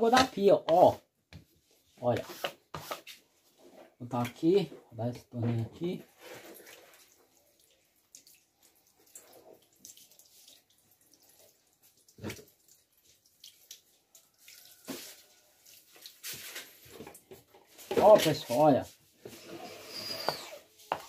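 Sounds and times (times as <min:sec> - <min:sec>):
water dripping: 0:06.4 - 0:17.4.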